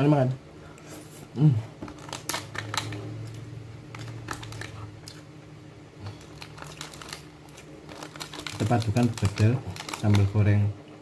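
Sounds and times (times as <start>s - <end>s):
food box crinkling: 3.9s - 4.8s, 6.1s - 10.5s.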